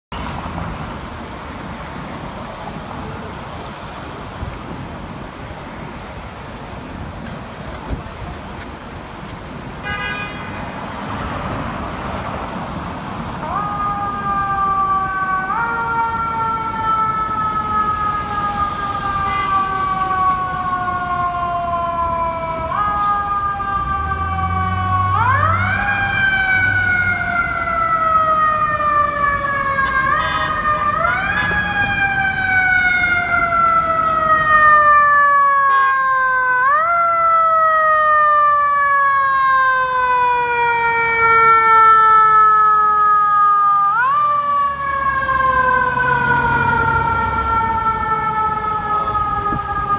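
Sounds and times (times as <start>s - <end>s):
fire engine siren wailing: 10.8s - 49.9s.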